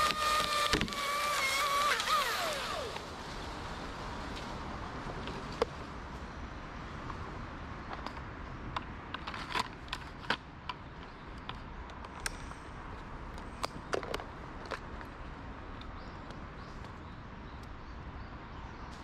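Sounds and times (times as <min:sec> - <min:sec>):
clicks of rope hardware: 0:07.9 - 0:15.2.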